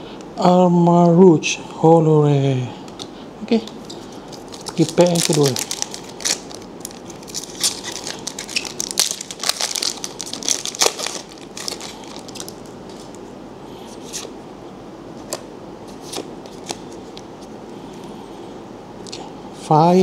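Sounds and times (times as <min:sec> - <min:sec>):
cards being handled: 0:02.9 - 0:13.2, 0:15.2 - 0:17.3
foil wrapper crinkling and tearing: 0:04.3 - 0:13.1.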